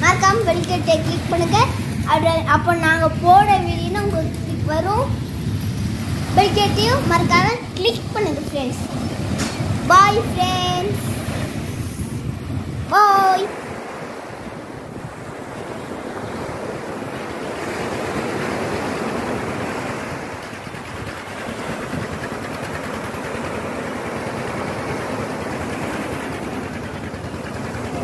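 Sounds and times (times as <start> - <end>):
waves washing up beach: 0.0 - 28.0.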